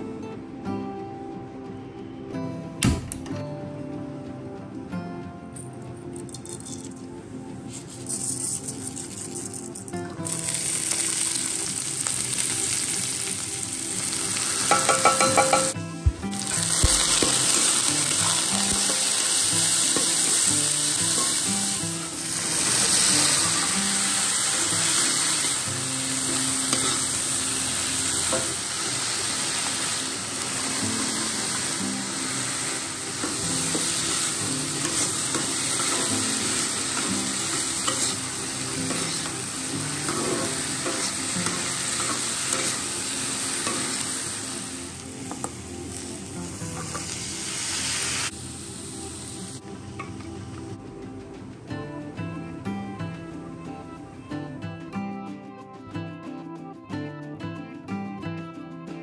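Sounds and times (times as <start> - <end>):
food sizzling in hot oil: 7.9 - 50.2
spatula scraping a wok: 40.0 - 42.8.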